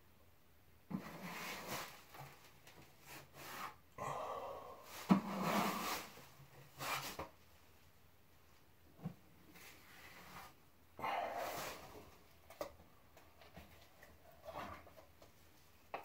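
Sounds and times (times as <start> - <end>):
drywall knife scraping compound: 0.9 - 2.3, 3.0 - 3.8, 4.9 - 7.3.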